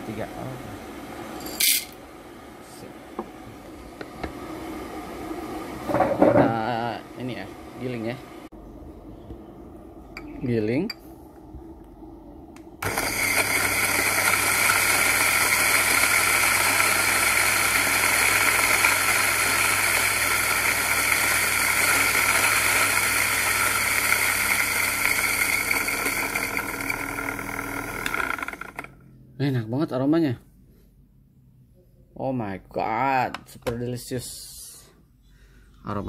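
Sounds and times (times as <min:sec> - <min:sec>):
electric coffee grinder grinding: 0:01.4 - 0:02.0, 0:12.8 - 0:29.0.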